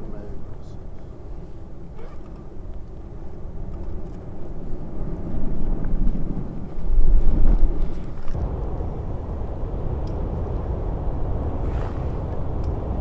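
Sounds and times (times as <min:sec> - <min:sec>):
lava lake churning and bursting: 0:04.8 - 0:13.0.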